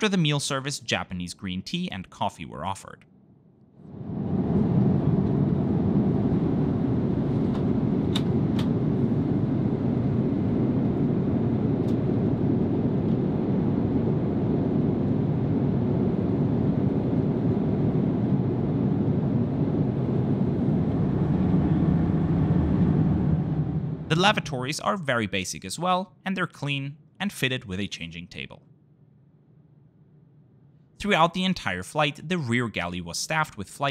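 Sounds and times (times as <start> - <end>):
airplane cabin engine rush: 3.8 - 24.7.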